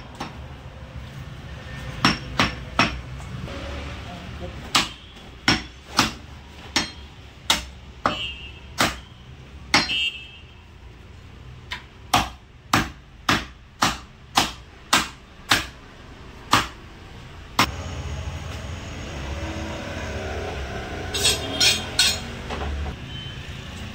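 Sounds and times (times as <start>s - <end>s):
cleaver chopping on wooden block: 4.7s - 8.2s, 8.8s - 9.1s, 11.7s - 15.8s, 16.5s - 16.8s
metallic ring of blade: 21.1s - 22.4s.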